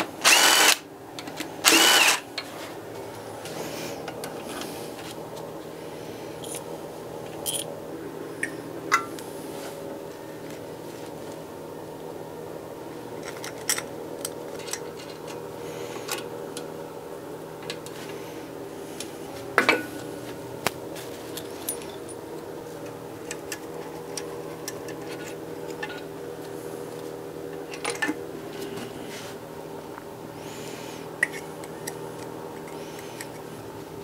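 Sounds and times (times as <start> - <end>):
steady background hum: 0.0 - 34.0.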